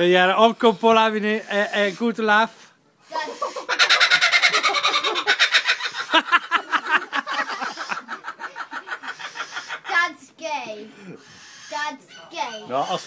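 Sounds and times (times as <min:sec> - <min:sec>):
kookaburra laughing call: 0:03.1 - 0:10.0.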